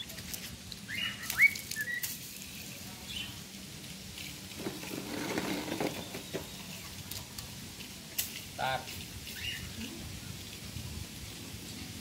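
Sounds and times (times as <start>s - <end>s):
cockatiels whistling: 0.9s - 2.1s.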